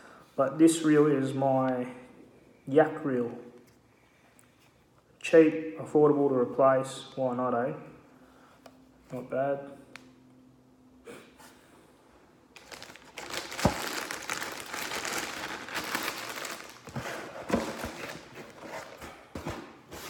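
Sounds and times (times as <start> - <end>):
plastic bag crinkling: 12.6 - 19.0.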